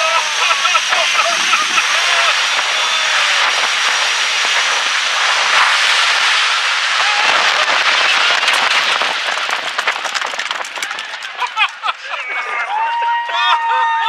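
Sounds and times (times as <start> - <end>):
thin high whine: 0.0 - 9.1
jet engine roar with crackling: 0.0 - 12.9.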